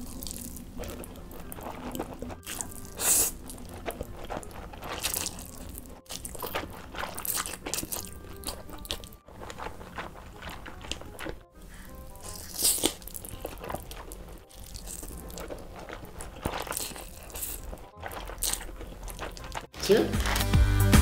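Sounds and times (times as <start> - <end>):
crunching and chewing: 0.0 - 20.6
noodles slurping: 0.0 - 20.7.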